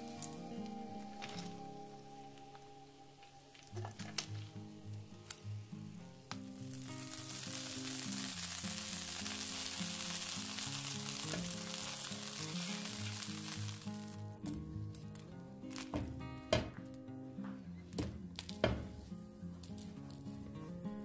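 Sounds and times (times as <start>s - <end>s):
butter sizzling in a grill pan: 4.1s - 14.3s.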